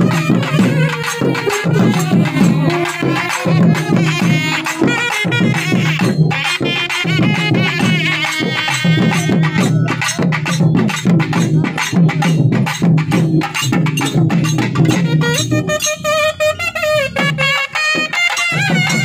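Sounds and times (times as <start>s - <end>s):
drums beating fast rhythm: 0.0s - 19.0s
wind instrument melody: 0.0s - 19.0s.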